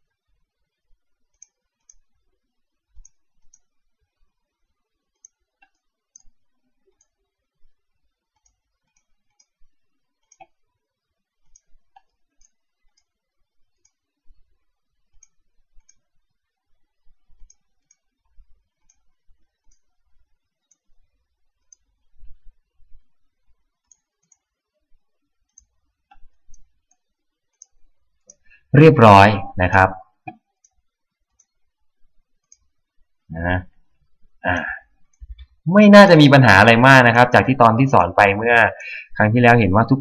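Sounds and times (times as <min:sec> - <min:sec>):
computer mouse clicking: 0:01.2 - 0:02.3, 0:02.9 - 0:03.8, 0:05.1 - 0:07.4, 0:08.3 - 0:10.7, 0:11.4 - 0:24.7, 0:25.4 - 0:28.5, 0:30.3 - 0:31.7, 0:32.4 - 0:32.8.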